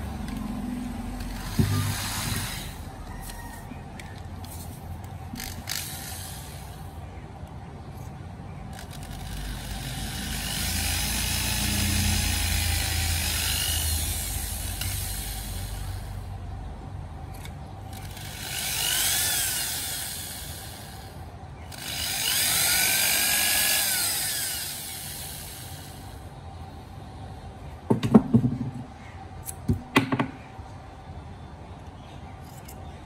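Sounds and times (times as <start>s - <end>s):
electric drill grinding into wood: 1.1s - 3.4s, 5.3s - 6.8s, 8.7s - 16.1s, 17.9s - 26.2s.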